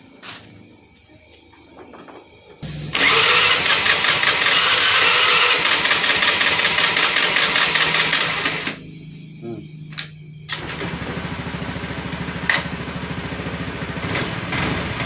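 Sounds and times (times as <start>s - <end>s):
electric starter cranking engine: 2.6s - 8.8s, 10.5s - 15.0s.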